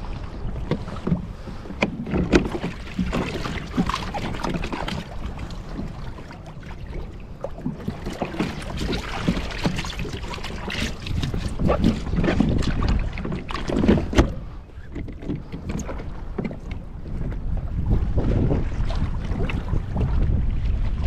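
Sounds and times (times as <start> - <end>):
wind rumble on microphone: 0.0 - 21.0
gear knocking on plastic kayak: 0.6 - 6.0, 7.7 - 18.2.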